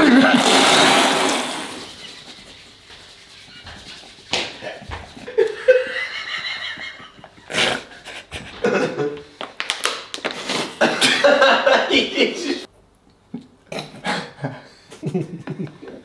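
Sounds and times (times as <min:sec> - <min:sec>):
men laughing wheezily: 0:00.0 - 0:01.0, 0:04.6 - 0:09.2, 0:10.8 - 0:12.7.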